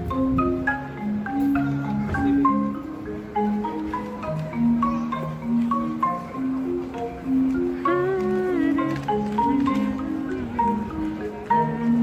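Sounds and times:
marimba melody: 0.0 - 12.0.

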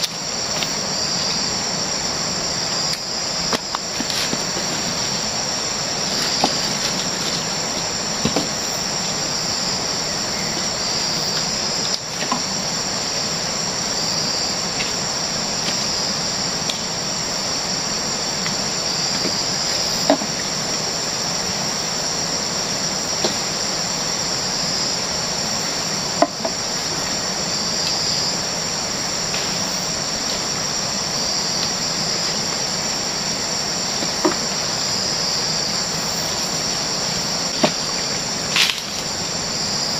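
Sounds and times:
jungle insects chorus: 0.0 - 39.9
palm stalks knocking on logs: 6.2 - 8.6, 26.2 - 26.6, 34.0 - 34.5, 37.5 - 39.1.

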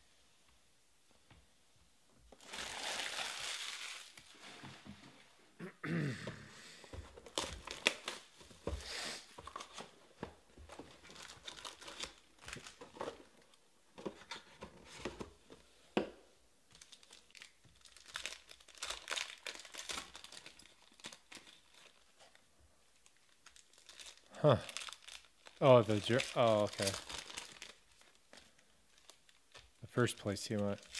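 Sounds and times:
foil packs crinkling: 2.3 - 4.6, 7.2 - 8.4, 11.0 - 13.1, 16.7 - 22.2, 23.0 - 30.9.

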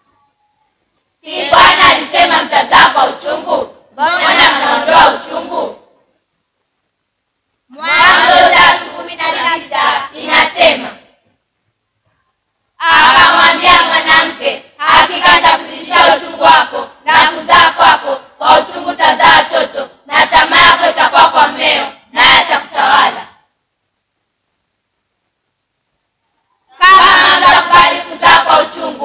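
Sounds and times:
children reciting in unison: 1.2 - 6.0, 7.7 - 11.1, 12.8 - 23.4, 26.7 - 29.0.

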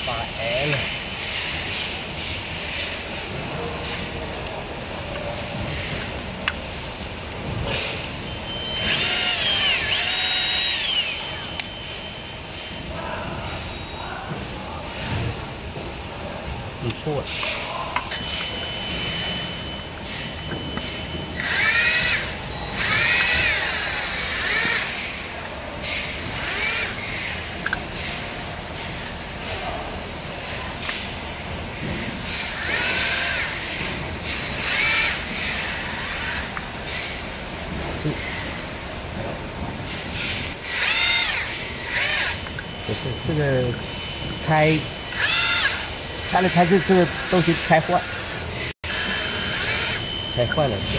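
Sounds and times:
electric drill running: 8.8 - 11.7, 21.3 - 25.2, 25.9 - 27.5, 32.4 - 33.8, 34.4 - 36.6, 40.2 - 42.7, 45.1 - 50.1.

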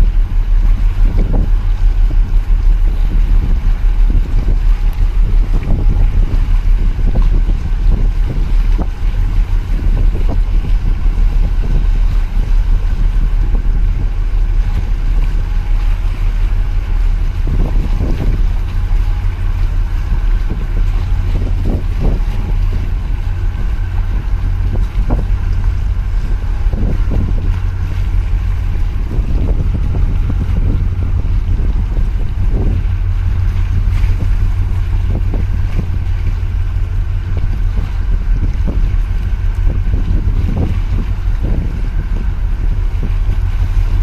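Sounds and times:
ship engine drone: 0.0 - 44.0
water washing against concrete: 0.0 - 44.0
wind on microphone: 0.0 - 44.0.

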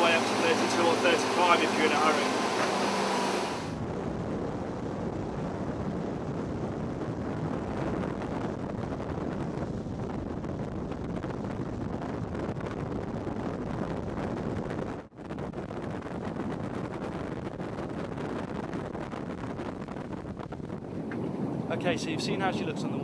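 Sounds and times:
boat engine: 0.0 - 3.8
water rushing: 0.0 - 3.8
wind buffeting microphone: 0.0 - 23.0.

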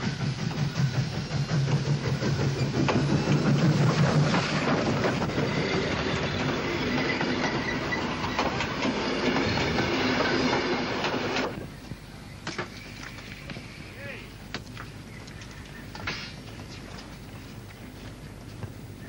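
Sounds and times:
steam locomotive rumbling: 0.0 - 12.3
high wheel squeal: 5.2 - 11.0.

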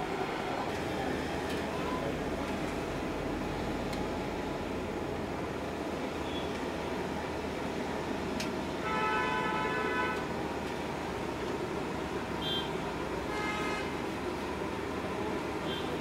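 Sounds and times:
street noise: 0.0 - 16.0
vehicle horn: 8.8 - 10.2, 13.3 - 13.9.

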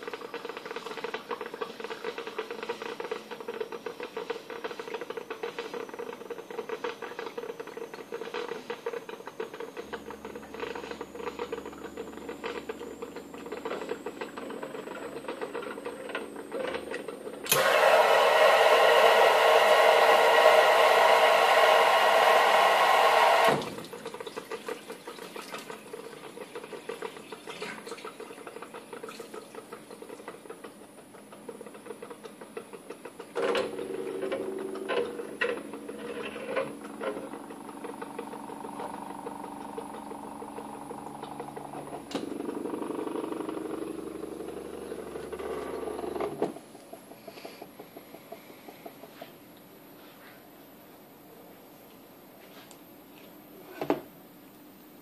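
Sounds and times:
coffee machine rattle and hum: 0.0 - 49.3
faint high whine: 5.7 - 17.8.

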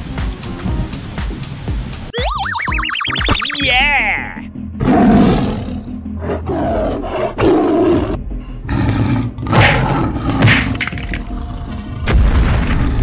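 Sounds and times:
dinosaur roars: 4.8 - 13.0.

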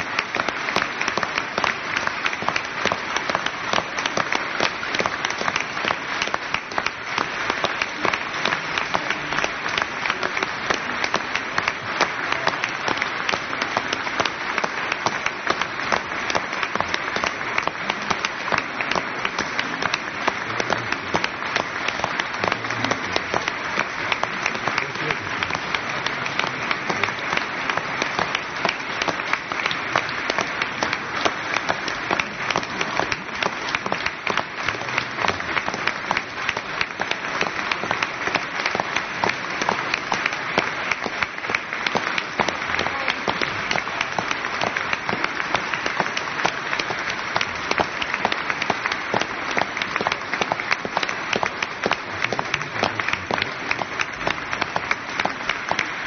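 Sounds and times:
audience applauding: 0.0 - 56.0.

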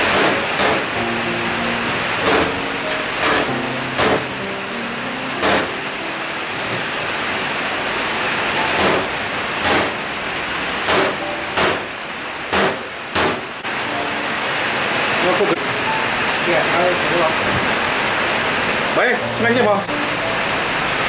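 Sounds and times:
steady rushing hiss: 0.0 - 21.0
cleaver chopping on wooden board: 8.8 - 9.9.

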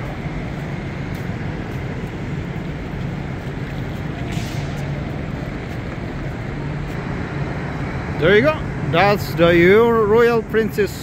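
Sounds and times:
low mechanical hum: 0.0 - 11.0
short hiss: 4.3 - 5.0.

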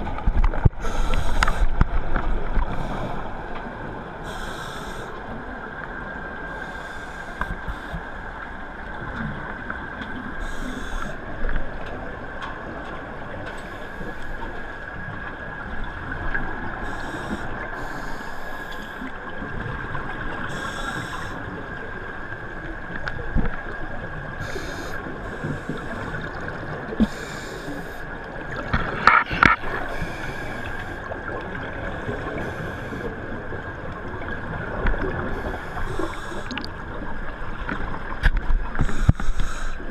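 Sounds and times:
steady background hum: 0.0 - 39.9
thin constant tone: 2.4 - 38.0
exhaled bubbles underwater: 14.9 - 39.9.

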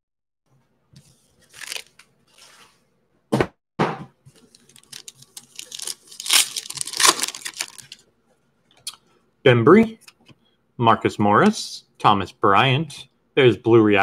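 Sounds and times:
foil wrapper tearing and crinkling: 1.5 - 2.0, 4.4 - 8.0.

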